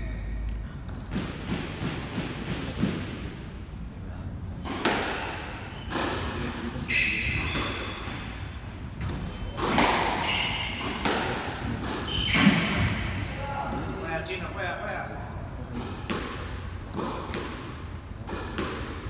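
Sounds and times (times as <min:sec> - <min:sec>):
squash ball smacking rackets and walls: 0:00.4 - 0:03.7, 0:04.5 - 0:14.1, 0:15.6 - 0:19.0
shoes squeaking on wooden floor: 0:06.8 - 0:08.4, 0:10.1 - 0:10.8, 0:12.0 - 0:12.8.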